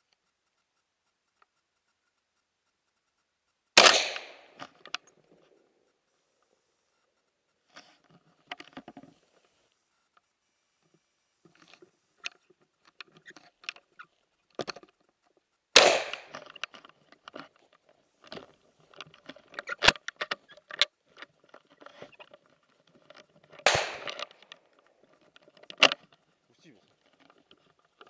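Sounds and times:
gunshots with echo: 0:03.8 - 0:04.6, 0:15.8 - 0:16.4, 0:23.6 - 0:24.4
gun handling clicks and knocks: 0:03.8 - 0:05.3, 0:07.8 - 0:09.5, 0:11.4 - 0:15.0, 0:15.8 - 0:28.0.

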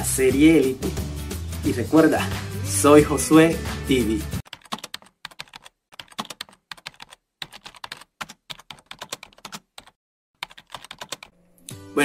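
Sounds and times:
keyboard typing: 0:04.5 - 0:11.7.

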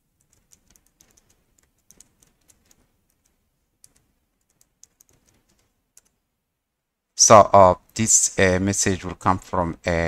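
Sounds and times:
keyboard keystrokes: 0:00.2 - 0:06.2.

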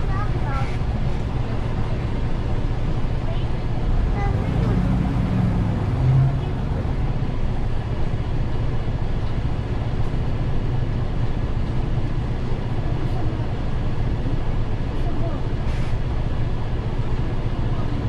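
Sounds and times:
bus engine and road rumble: 0:00.0 - 0:18.0.

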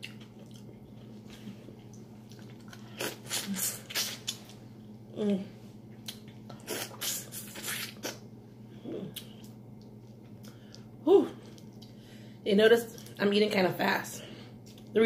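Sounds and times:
wet mouth smacking and sucking: 0:03.0 - 0:04.6, 0:06.1 - 0:08.2.

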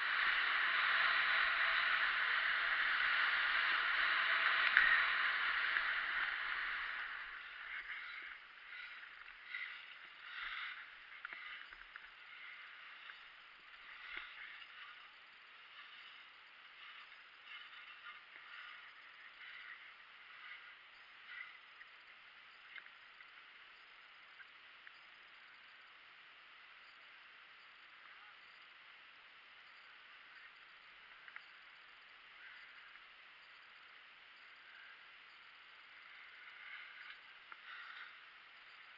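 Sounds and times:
skis scraping over snow: 0:00.0 - 0:21.7, 0:35.9 - 0:38.9
faint steady hiss: 0:00.0 - 0:38.9
faint ticks: 0:02.8 - 0:38.9.

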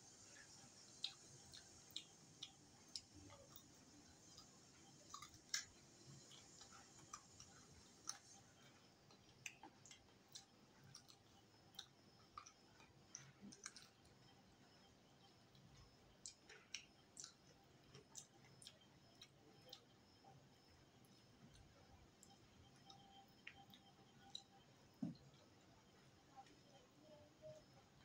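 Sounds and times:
mouth chewing: 0:00.4 - 0:14.0.

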